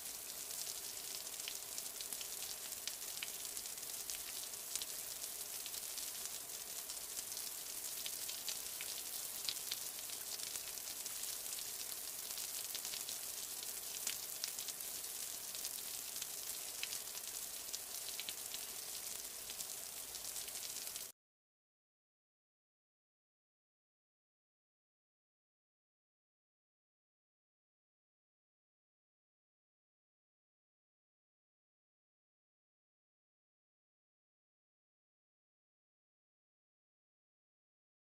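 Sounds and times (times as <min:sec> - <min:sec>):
snow falling hiss: 0:00.0 - 0:21.1.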